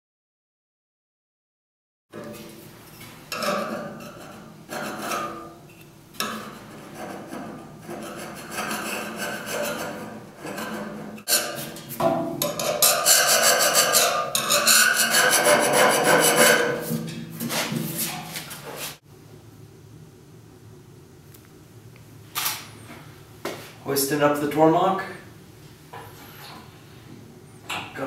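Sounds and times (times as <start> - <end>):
metal blade scraping steel: 7.9 - 16.9.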